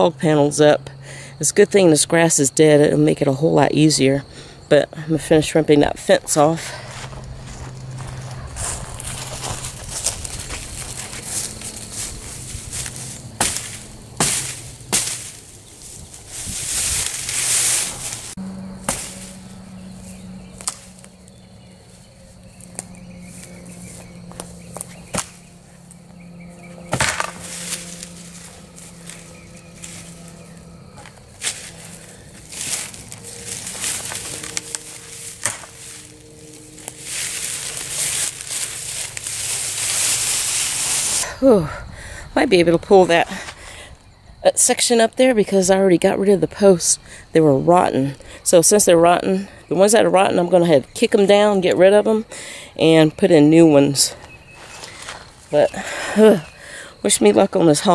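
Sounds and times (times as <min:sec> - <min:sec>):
rustling leaves and grass: 0:00.0 - 0:57.9
wire mesh ripping: 0:31.4 - 0:41.2.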